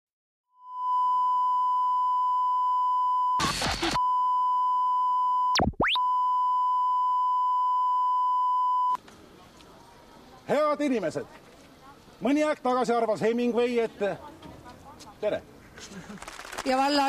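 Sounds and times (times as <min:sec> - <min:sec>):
noise burst: 0:03.3 - 0:04.0.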